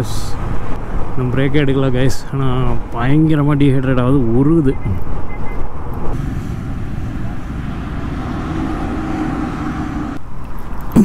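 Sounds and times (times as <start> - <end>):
road noise: 0.0 - 11.0
wind noise: 4.8 - 11.0.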